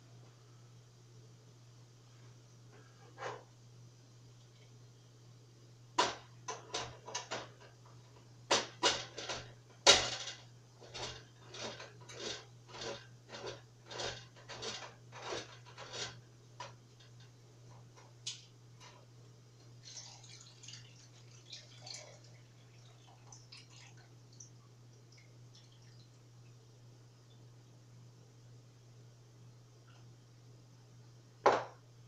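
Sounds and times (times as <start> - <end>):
low steady hum: 0.0 - 32.0.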